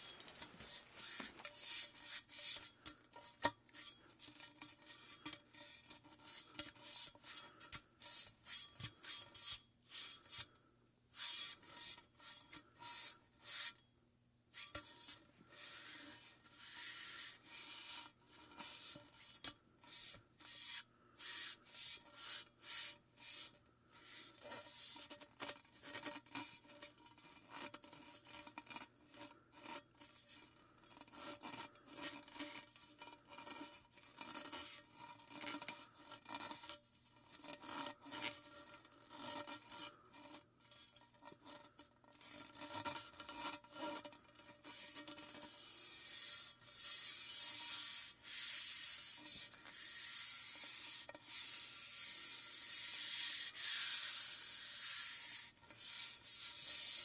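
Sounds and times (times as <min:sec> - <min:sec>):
steady hiss: 0:46.1 - 0:57.0.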